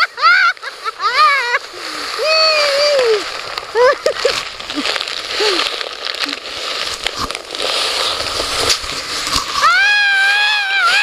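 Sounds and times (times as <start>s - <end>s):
sled sliding on snow: 0.0s - 11.0s
snow crunching: 0.0s - 11.0s
person squealing: 2.2s - 6.4s, 9.6s - 11.0s.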